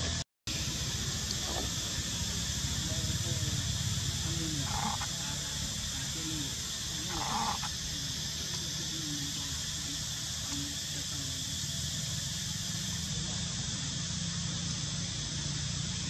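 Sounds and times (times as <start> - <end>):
high outdoor hiss: 0.0 - 16.0
monkey squealing: 4.6 - 5.2, 7.0 - 7.8.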